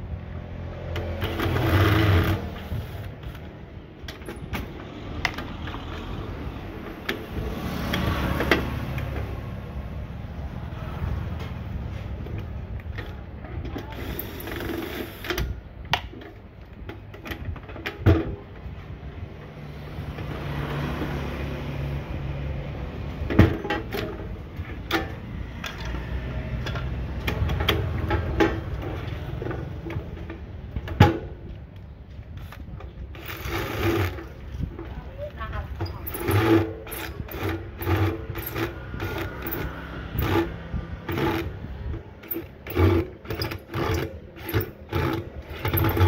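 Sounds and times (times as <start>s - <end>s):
screwdriver working at screws: 35.8s - 41.6s, 42.2s - 46.0s.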